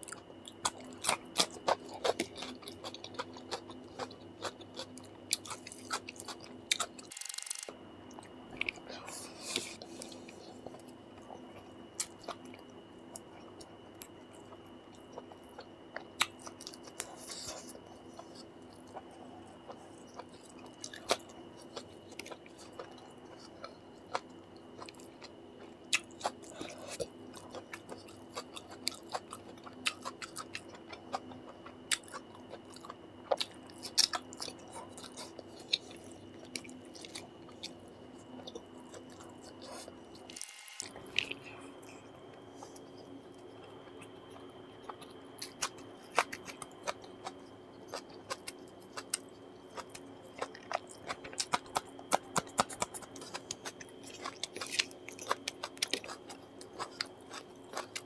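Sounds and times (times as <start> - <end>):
faint steady hum: 0.0 - 58.0
chewing and wet mouth clicks: 43.6 - 58.0.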